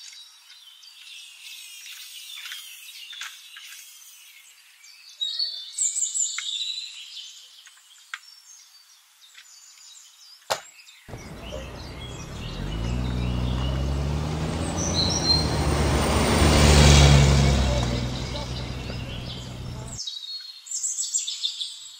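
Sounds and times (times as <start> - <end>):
birds chirping: 11.1 - 20.0
engine-like rumble with hum: 11.1 - 20.0.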